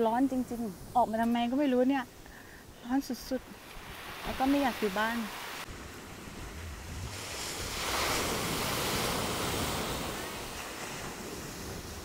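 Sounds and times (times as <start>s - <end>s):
small waves washing on sand: 3.3s - 12.0s.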